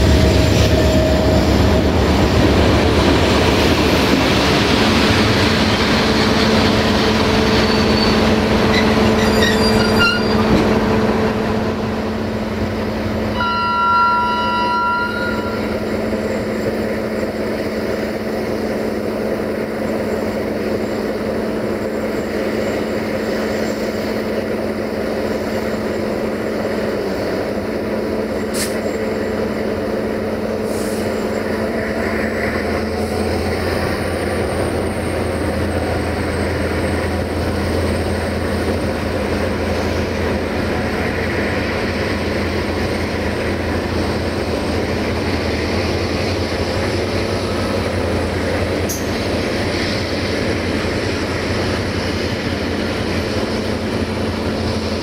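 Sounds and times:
train wheels rumbling on track: 0:00.0 - 0:55.0
two-note train horn blast: 0:13.3 - 0:16.0.

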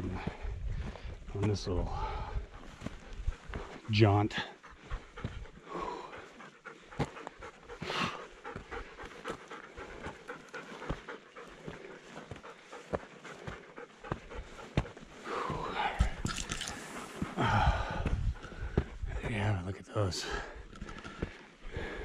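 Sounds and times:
person breathing hard: 0:00.0 - 0:03.8, 0:04.5 - 0:19.2, 0:20.2 - 0:22.0
footsteps clicking: 0:02.6 - 0:19.5.

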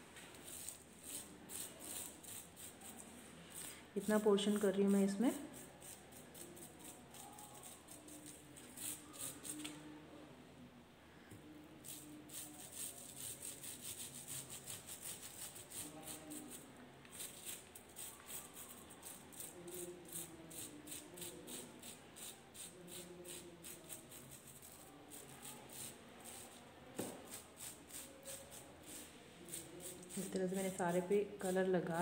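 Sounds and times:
paintbrush scratching: 0:00.2 - 0:09.8, 0:11.8 - 0:30.8.

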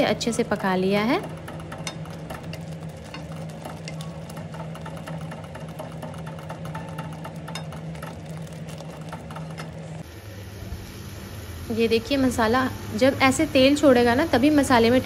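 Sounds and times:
steady low hum: 0:00.0 - 0:15.0
sauce sputtering in a pan: 0:01.1 - 0:12.4.

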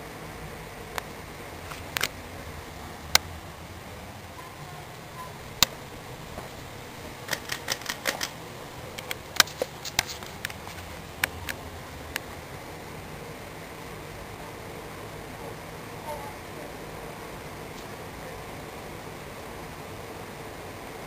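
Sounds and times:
ceiling fan humming: 0:00.0 - 0:21.0
sharp irregular clicks: 0:00.9 - 0:02.2, 0:07.2 - 0:12.3.

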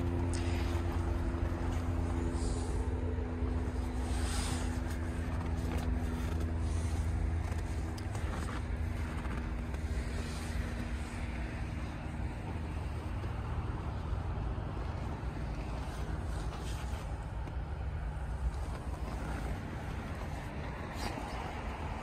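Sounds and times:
pickup truck engine idling: 0:00.0 - 0:22.0
footsteps crunching in snow: 0:03.5 - 0:13.7.

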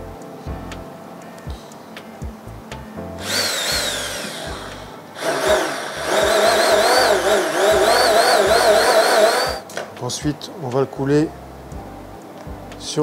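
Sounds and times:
immersion blender whining: 0:03.2 - 0:09.6.

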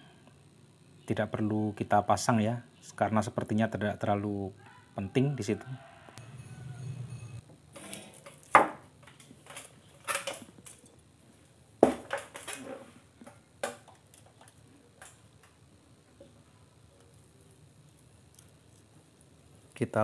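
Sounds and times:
objects knocking and clattering: 0:11.8 - 0:15.2.

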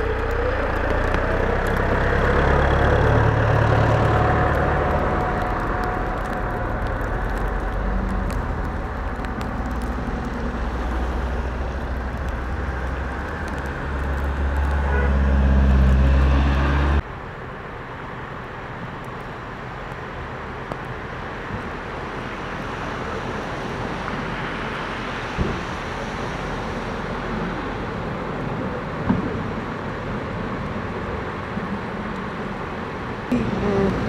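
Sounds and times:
diesel van engine passing: 0:00.0 - 0:08.6.

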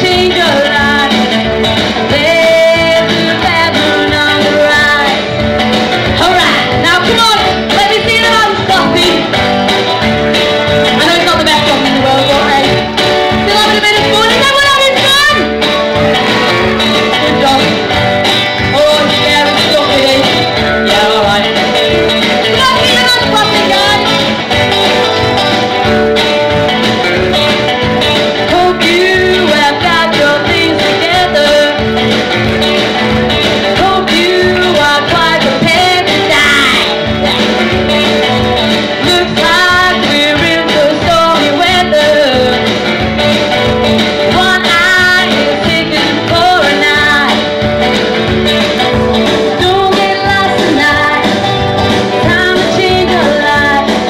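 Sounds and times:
woman singing into microphone: 0:00.0 - 0:05.3, 0:06.1 - 0:09.4, 0:10.8 - 0:15.6, 0:17.0 - 0:17.9, 0:18.6 - 0:24.4, 0:28.4 - 0:31.9, 0:33.7 - 0:37.0, 0:39.0 - 0:42.7, 0:44.2 - 0:47.5, 0:49.5 - 0:51.5, 0:52.1 - 0:54.0
instrumental accompaniment: 0:00.0 - 0:54.0.

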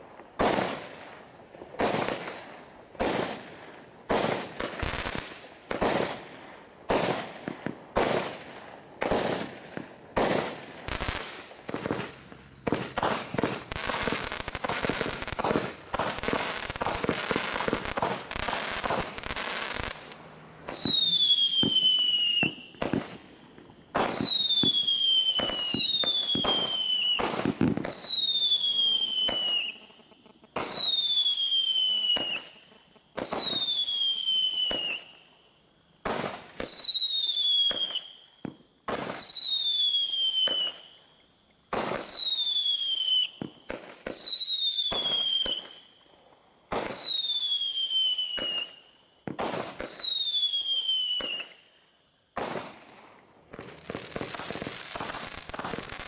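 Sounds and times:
firework bangs: 0:00.0 - 0:35.2, 0:36.0 - 0:40.9, 0:41.7 - 0:45.8, 0:46.7 - 0:51.6, 0:52.3 - 0:56.0
firework whistle falling in pitch: 0:20.7 - 0:23.0.

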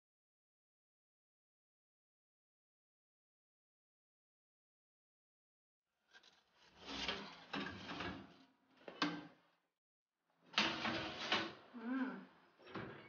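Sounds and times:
wire rack rattling and scraping: 0:06.1 - 0:09.4, 0:10.5 - 0:11.7.

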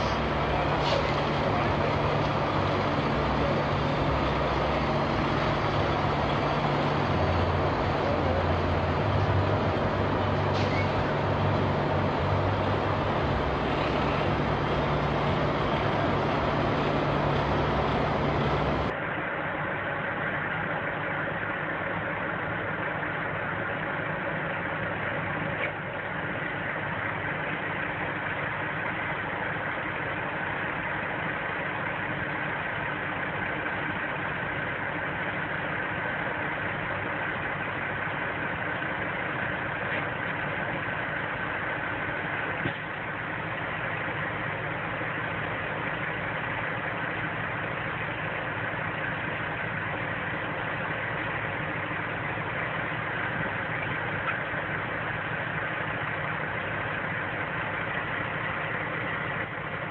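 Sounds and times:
diesel truck engine running: 0:00.0 - 0:59.9
quieter truck engine: 0:00.0 - 0:59.9.

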